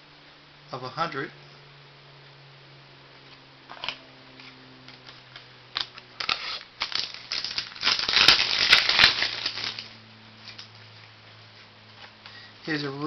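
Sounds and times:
packaging crinkling and crackling: 5.8s - 10.7s.

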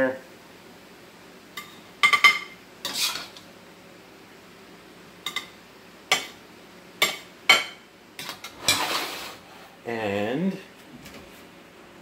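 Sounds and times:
spatula clinking: 1.6s - 3.4s, 5.2s - 6.4s, 7.0s - 8.9s
spatula scraping wok: 1.6s - 3.5s, 8.2s - 9.8s.

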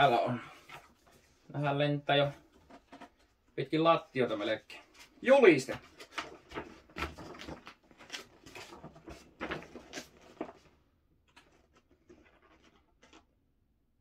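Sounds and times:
paper crackling and rustling: 4.2s - 13.3s.

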